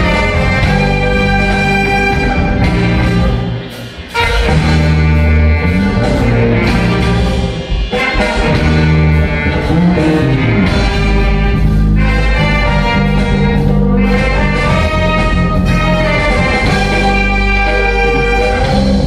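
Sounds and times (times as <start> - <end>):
big band playing: 0.0 - 19.0.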